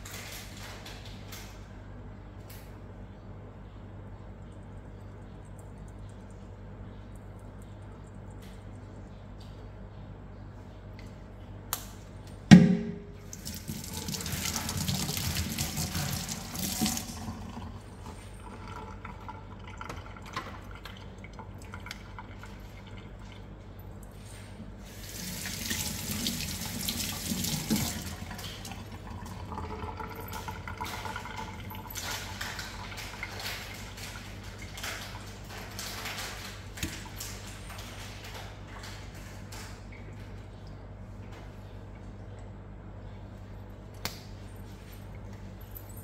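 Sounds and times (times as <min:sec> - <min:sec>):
sharp knock: 0:12.5 - 0:13.2
tap water running into sink: 0:13.2 - 0:23.4, 0:24.9 - 0:35.3.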